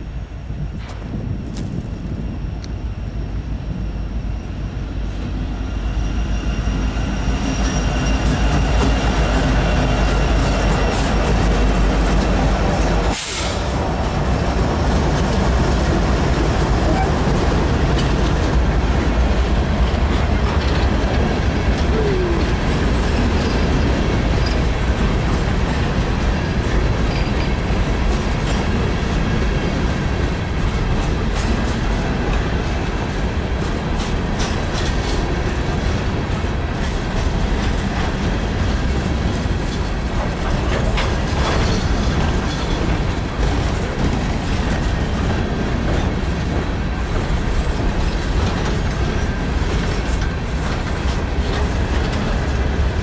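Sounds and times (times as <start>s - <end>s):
freight train rumbling past: 0.0s - 53.0s
wheels clicking over rail joints: 13.9s - 53.0s.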